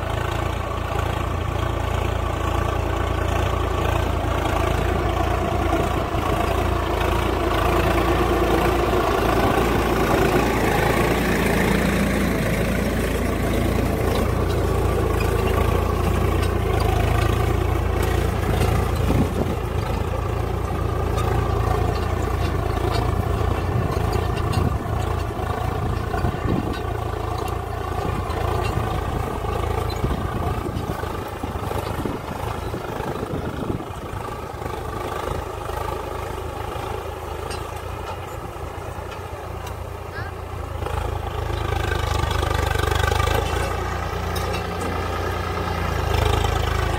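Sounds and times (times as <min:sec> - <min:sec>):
tractor diesel engine under load: 0:00.0 - 0:46.9.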